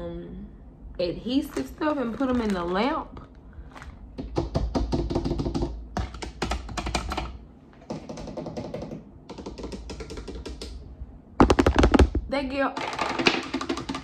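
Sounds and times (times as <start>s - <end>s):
plastic bag crinkling: 1.5s - 4.0s.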